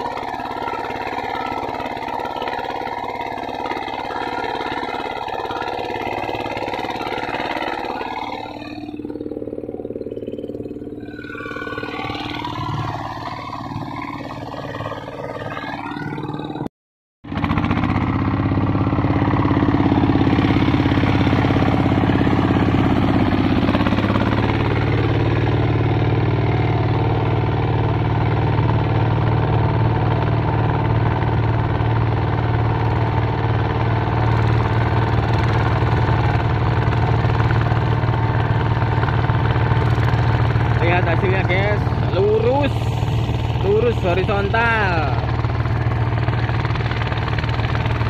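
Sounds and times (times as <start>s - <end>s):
diesel tractor engine running: 0.0s - 48.0s.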